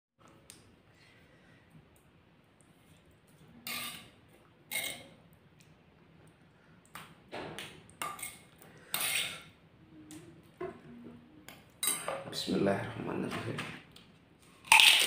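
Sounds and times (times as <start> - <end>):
metal spoon scraping stone mortar: 4.7 - 5.1, 8.0 - 9.5.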